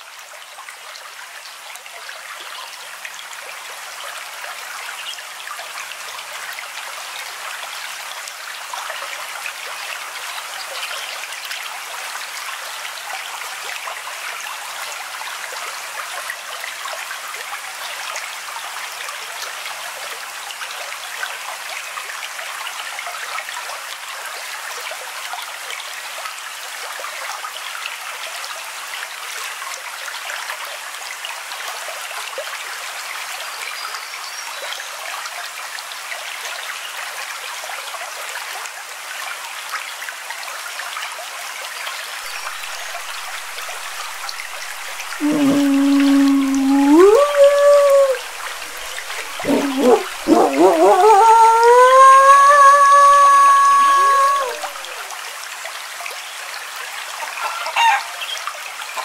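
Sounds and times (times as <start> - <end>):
running water: 42.1 - 59.0.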